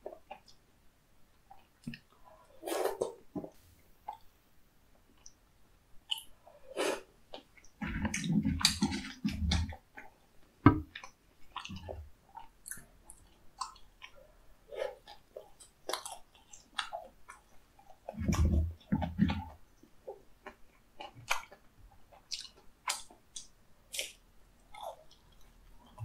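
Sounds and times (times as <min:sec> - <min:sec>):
person chewing food: 0:06.0 - 0:26.0.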